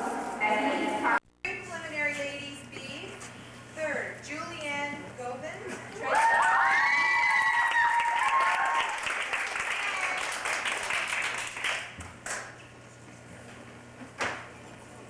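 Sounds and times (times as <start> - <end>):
people cheering: 5.9 - 11.3
audience clapping: 6.1 - 12.6.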